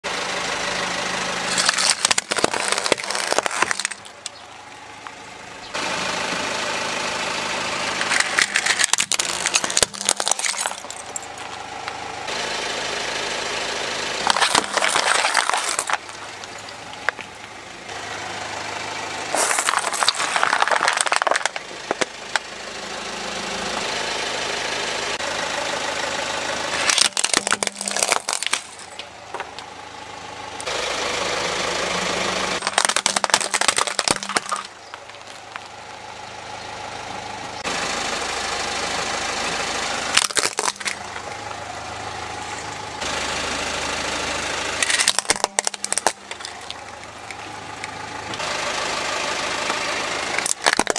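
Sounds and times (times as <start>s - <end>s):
car engine running: 0.0s - 50.9s
plastic bottles cracking under tyre: 1.5s - 4.5s, 8.0s - 11.6s, 14.2s - 17.6s, 19.4s - 22.4s, 26.8s - 29.6s, 32.6s - 35.8s, 40.1s - 41.3s, 44.8s - 47.4s, 50.4s - 50.9s.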